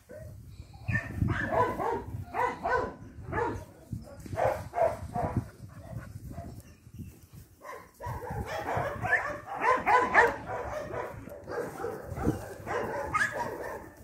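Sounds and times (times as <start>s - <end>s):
dog barking excitedly: 0.9s - 3.6s, 7.6s - 14.0s.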